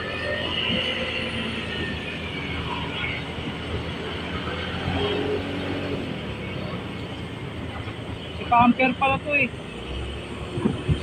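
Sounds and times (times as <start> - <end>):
road noise: 0.0 - 11.0
wind noise: 10.3 - 11.0.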